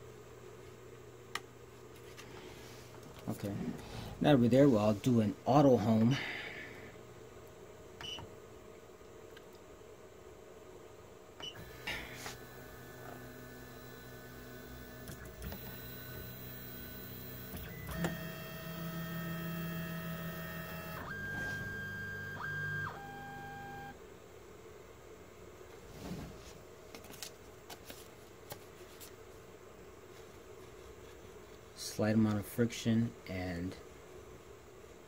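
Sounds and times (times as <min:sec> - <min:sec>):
stepper motors whining: 0:11.6 - 0:23.9.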